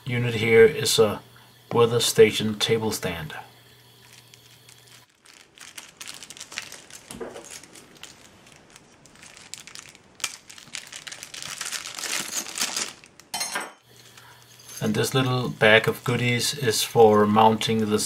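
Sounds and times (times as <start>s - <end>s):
plastic bag crinkling: 3.8s - 16.5s
screws shifting in a bag: 11.8s - 13.1s.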